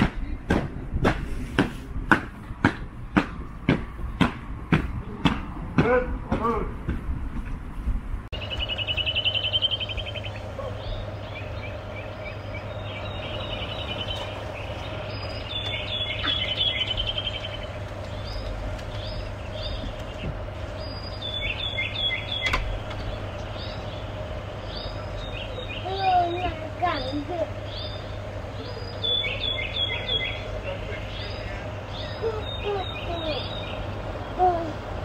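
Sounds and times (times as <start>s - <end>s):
steady low hum: 0.0s - 35.0s
songbirds chirping and trilling: 7.7s - 35.0s
fast rattling bird trills: 8.4s - 34.4s.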